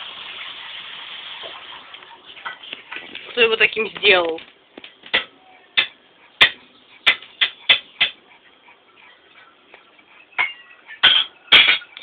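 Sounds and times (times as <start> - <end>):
sharp taps on a hard surface: 5.0 - 8.2.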